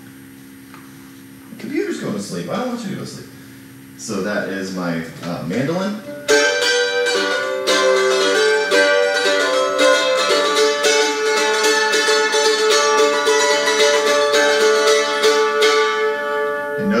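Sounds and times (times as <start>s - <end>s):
mandolin picked: 5.7s - 17.0s.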